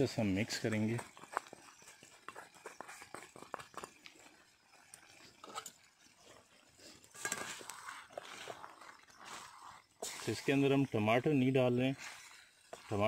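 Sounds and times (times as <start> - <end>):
pan popping and crackling: 0.0 - 13.0
spatula scraping metal pan: 5.2 - 13.0.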